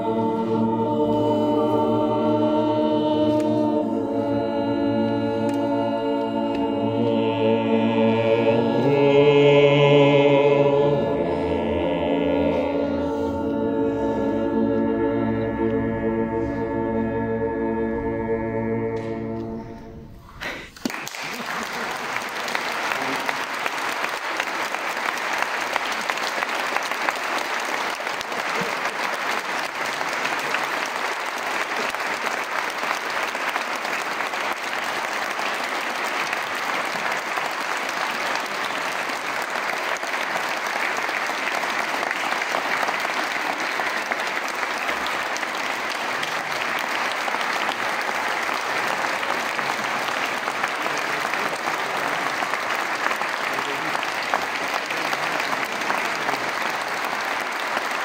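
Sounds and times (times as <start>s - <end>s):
people clapping: 20.4s - 58.0s.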